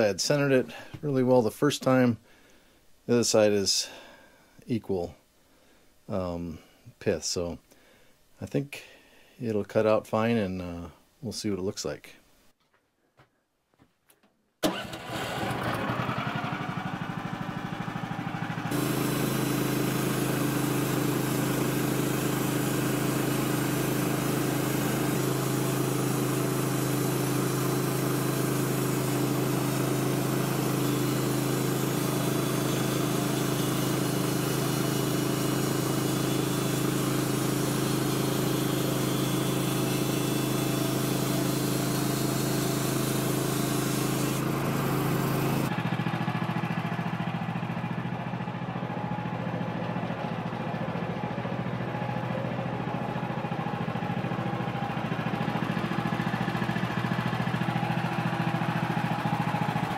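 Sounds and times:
sawmill engine starting and running: 14.6 - 59.9.

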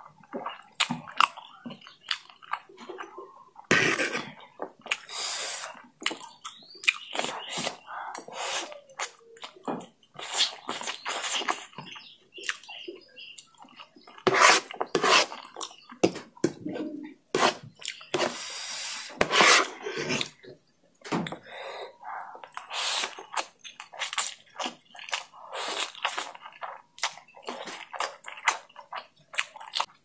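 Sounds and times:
chewing: 0.0 - 16.0, 17.6 - 18.4, 21.2 - 30.0
slurping noodles: 3.7 - 4.3, 7.2 - 8.8.

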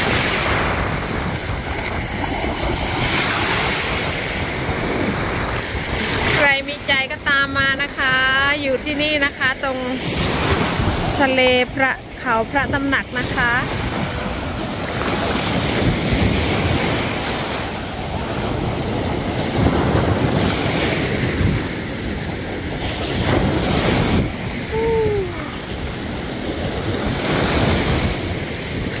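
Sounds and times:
small waves washing on shore: 0.0 - 29.0
wind buffeting microphone: 0.0 - 29.0.

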